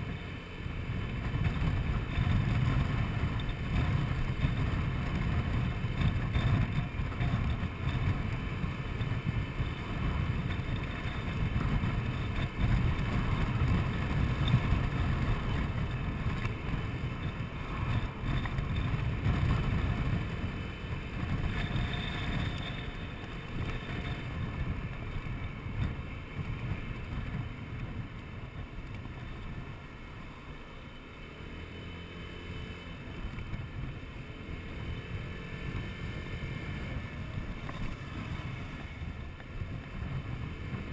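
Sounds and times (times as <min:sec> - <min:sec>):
wind buffeting microphone: 0:00.0 - 0:30.0, 0:33.1 - 0:40.9
scooter engine hum: 0:00.0 - 0:40.9.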